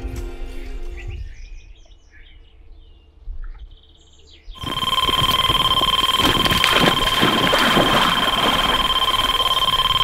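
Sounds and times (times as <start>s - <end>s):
bite alarm continuous tone: 4.6s - 10.0s.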